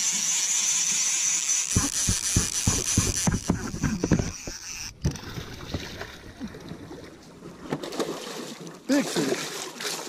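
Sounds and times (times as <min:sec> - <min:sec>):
fishing rod and reel thumps: 0:00.1 - 0:06.2.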